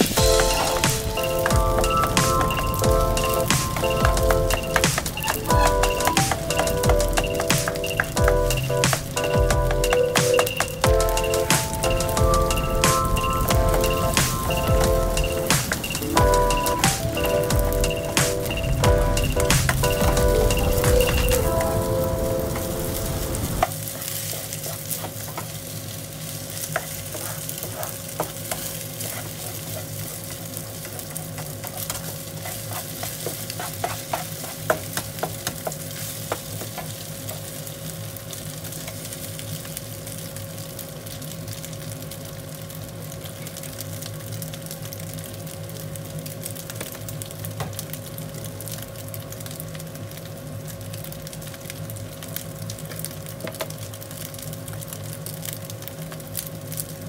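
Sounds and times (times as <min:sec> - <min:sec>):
steady hum: 0:00.0 - 0:23.7
rice sizzling in a frying pan: 0:00.0 - 0:57.0
spatula scraping and tapping pan: 0:31.4 - 0:36.9.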